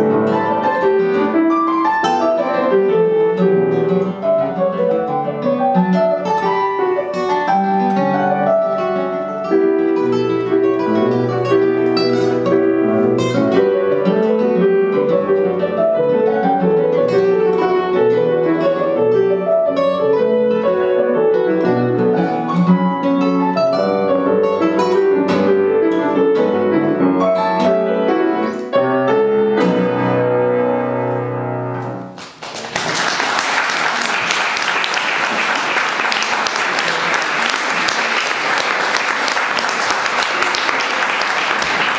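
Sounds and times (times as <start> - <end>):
classical guitar: 0.0 - 32.4
piano: 0.0 - 41.9
audience applause: 32.2 - 41.9.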